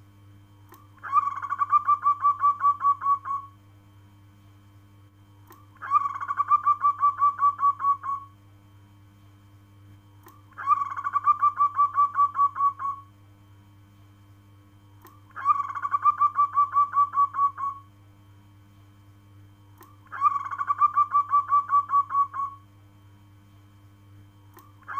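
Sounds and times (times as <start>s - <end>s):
faint low hum: 0.0s - 24.9s
dove cooing: 1.0s - 3.5s, 5.8s - 8.3s, 10.5s - 13.1s, 15.3s - 17.9s, 20.0s - 22.6s.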